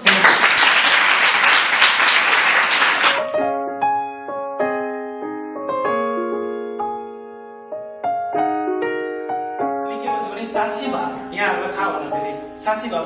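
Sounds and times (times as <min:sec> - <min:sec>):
crowd clapping: 0:00.0 - 0:03.3
slow piano music: 0:03.0 - 0:13.0.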